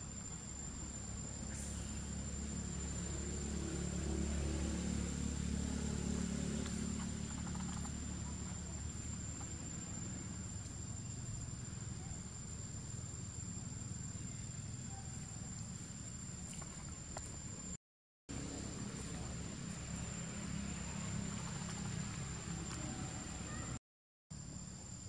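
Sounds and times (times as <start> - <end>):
vehicle engine passing: 1.0 - 10.4, 18.3 - 23.8.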